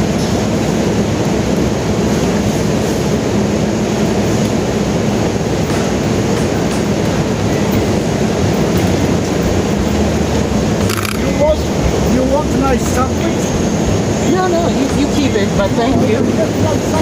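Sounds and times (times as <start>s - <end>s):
city traffic noise: 0.0s - 17.0s
low engine hum: 0.0s - 17.0s.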